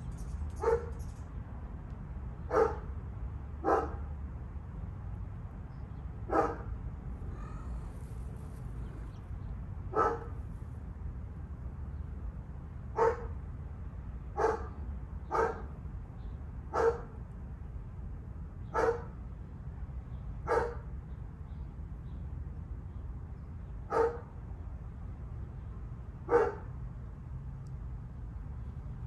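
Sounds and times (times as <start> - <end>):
animal short calls: 7.3 - 8.0.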